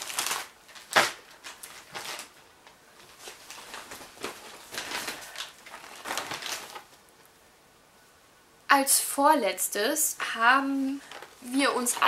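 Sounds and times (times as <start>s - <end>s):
plastic bag rustling: 0.0s - 7.1s, 11.0s - 12.0s.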